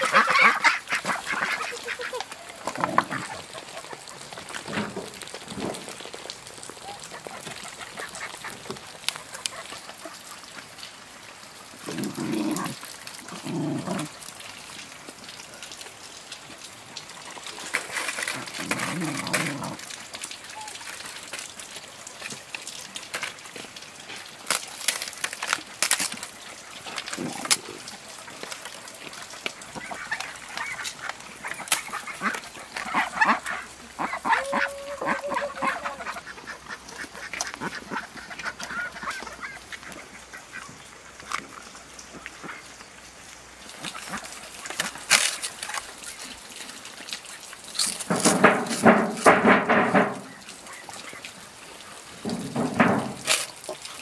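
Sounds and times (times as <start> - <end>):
ducks quacking: 0.0 - 4.2, 29.7 - 40.8
scattered clicks and knocks: 48.0 - 50.3, 52.3 - 53.4.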